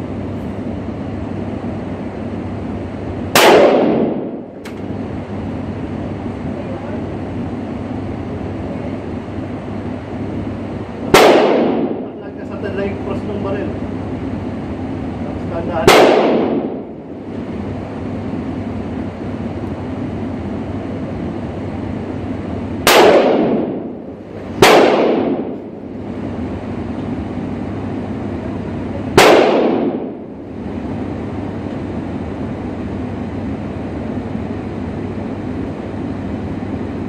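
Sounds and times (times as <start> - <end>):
steady background noise: 0.0 - 37.0
gunshots echoing indoors: 3.3 - 4.7, 11.1 - 12.2, 15.8 - 17.0, 22.8 - 25.7, 29.1 - 30.3.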